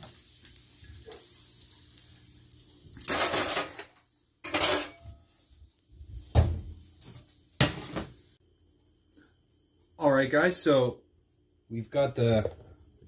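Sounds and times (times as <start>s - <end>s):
tongs and frying pan clattering: 3.0s - 5.4s.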